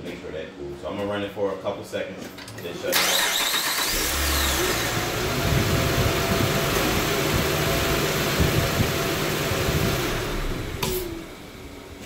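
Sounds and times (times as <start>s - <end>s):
car engine idling: 3.7s - 12.0s.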